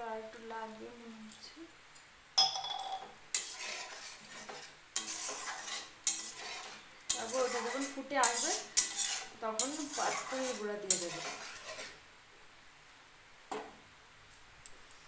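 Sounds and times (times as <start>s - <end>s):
metal spatula scraping a pan: 3.3s - 12.0s.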